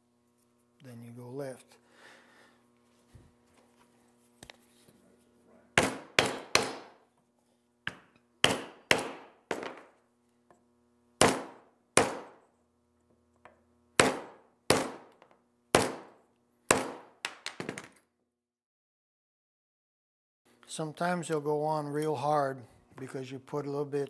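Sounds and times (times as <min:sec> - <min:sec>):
hammer striking wooden block: 0:05.8 - 0:07.0, 0:07.8 - 0:10.0, 0:11.2 - 0:12.4, 0:14.0 - 0:17.9.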